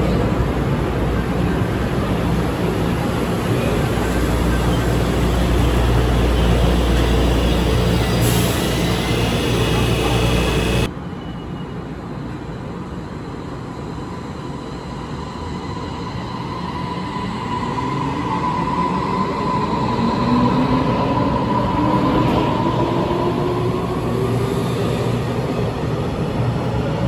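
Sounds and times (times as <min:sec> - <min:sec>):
electric train rumble: 0:00.0 - 0:10.9
train motor whine: 0:05.0 - 0:10.9.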